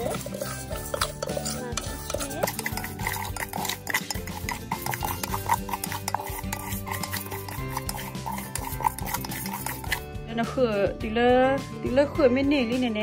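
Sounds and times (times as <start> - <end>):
spatula stirring rice in metal pot: 0.0 - 10.2.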